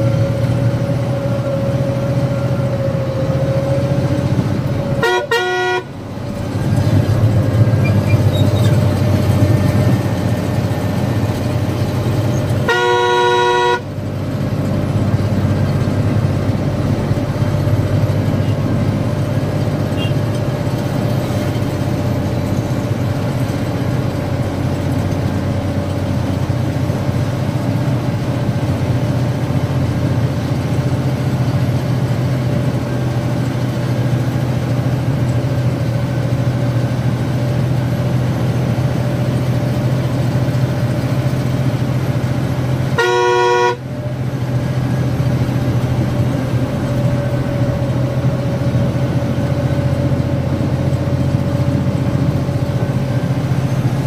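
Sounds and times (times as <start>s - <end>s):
truck engine droning: 0.0s - 54.0s
truck horn blast: 4.9s - 6.2s, 12.3s - 14.3s, 19.8s - 20.3s, 42.8s - 44.0s.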